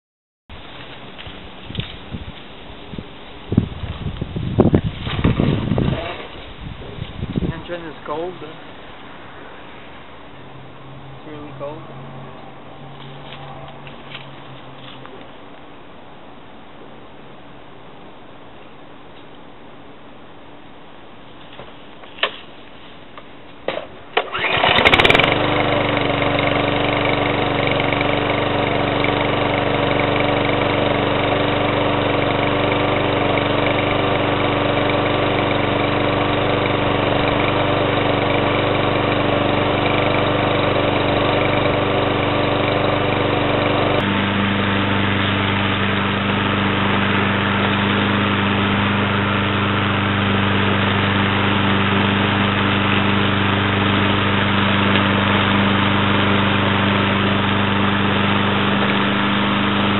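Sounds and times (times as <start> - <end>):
lawn mower engine running: 24.1 - 59.9
recoil starter pulls: 24.2 - 26.5.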